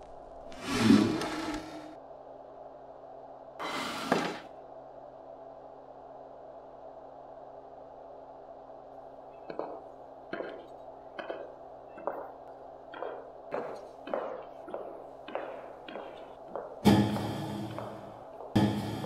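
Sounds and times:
steady low hum: 4.5 - 19.0
heeled footsteps on hard floor: 12.9 - 19.0.

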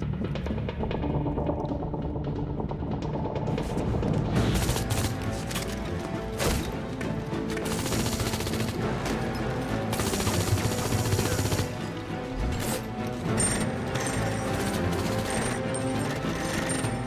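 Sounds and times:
rapid gunfire: 4.4 - 5.3, 7.6 - 9.1, 9.8 - 11.9, 14.1 - 15.6.

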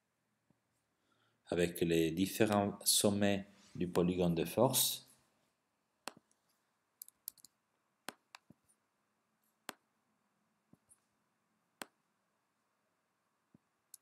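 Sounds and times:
computer mouse clicks: 7.0 - 8.6.

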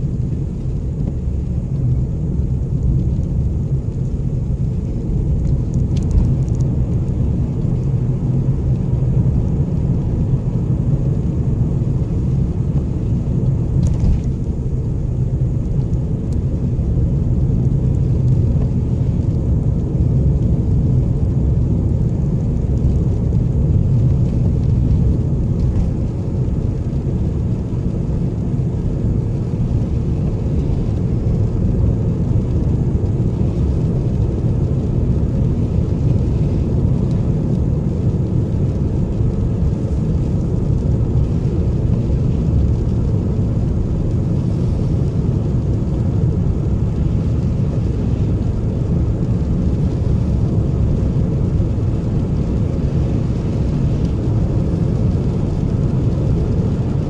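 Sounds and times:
car engine rumble: 0.0 - 57.0
tyres on wet road: 0.0 - 57.0.

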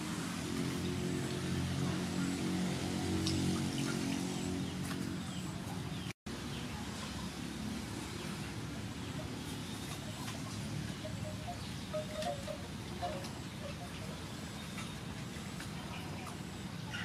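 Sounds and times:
small splashes and clicks: 3.1 - 5.8
birds calling: 9.0 - 17.0.

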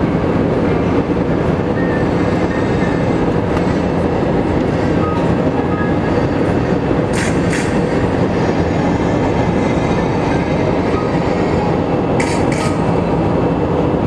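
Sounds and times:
jet engines rumble and hiss: 0.0 - 14.0.

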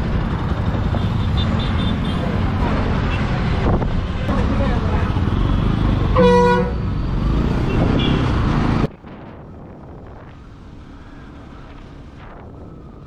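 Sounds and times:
road and engine noise: 0.0 - 13.0
vehicle horn honking: 6.2 - 6.8.

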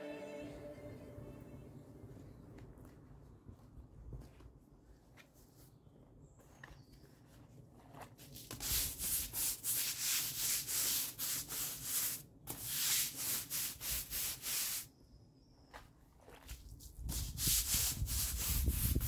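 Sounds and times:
brush scrubbing paving slabs: 7.8 - 14.9, 16.2 - 19.0.

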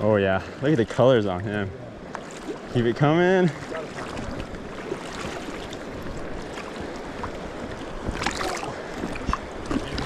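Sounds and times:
river water flowing: 0.0 - 10.0
water splash: 3.5 - 10.0.

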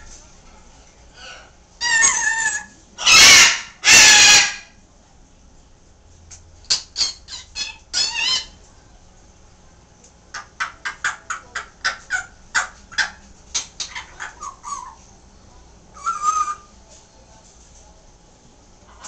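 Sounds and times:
parrot harsh squawk: 1.2 - 4.8, 6.7 - 8.6.

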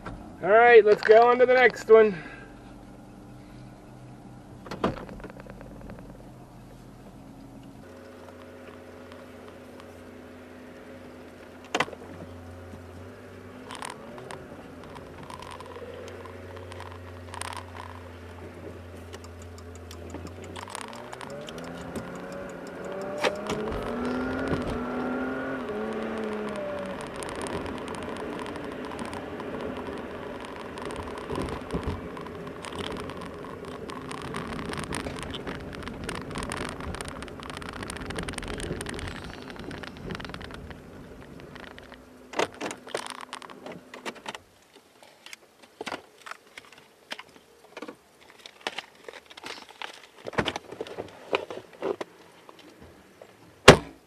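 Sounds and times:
tyre and road noise: 0.0 - 54.0
car engine accelerating: 2.0 - 44.0
sharp click: 19.1 - 24.8.

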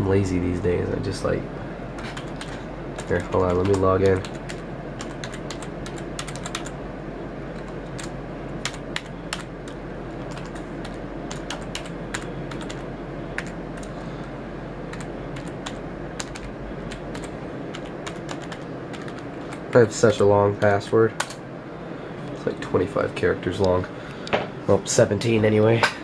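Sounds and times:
machine hum: 0.0 - 26.0
keyboard typing: 2.0 - 6.8, 7.5 - 14.0, 14.9 - 21.4.

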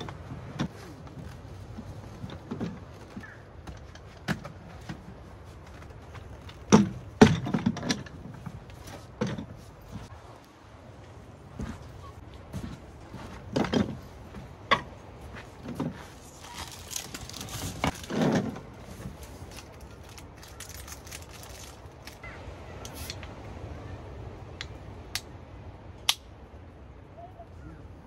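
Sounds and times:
footsteps on wooden deck: 11.0 - 19.2.

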